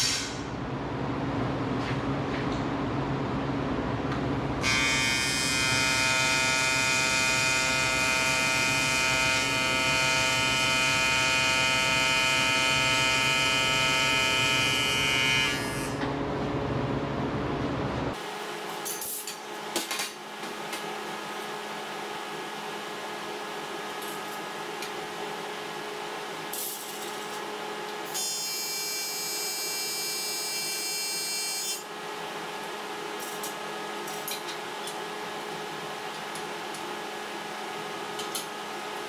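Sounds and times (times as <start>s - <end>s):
low machine hum: 0.3s - 18.2s.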